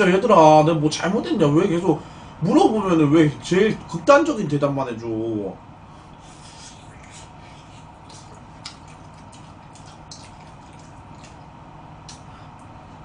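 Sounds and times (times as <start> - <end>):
low background hum: 0.0 - 13.0
wet chewing and lip-smacking: 6.4 - 12.8.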